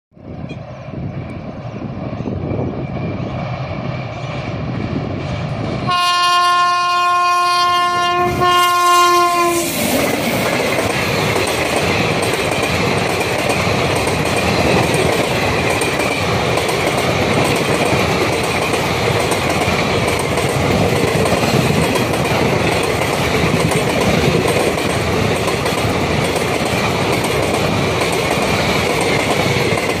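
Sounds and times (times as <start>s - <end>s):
train approaching: 0.1s - 30.0s
train air horn blasts: 5.9s - 9.8s
wheels on rails: 9.8s - 30.0s.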